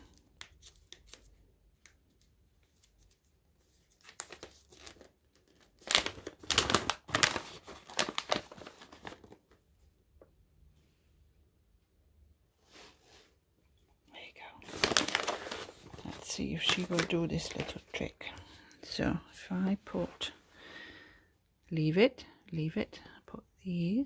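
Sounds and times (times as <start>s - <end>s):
plastic packet crinkling: 3.9s - 9.5s, 14.6s - 18.2s.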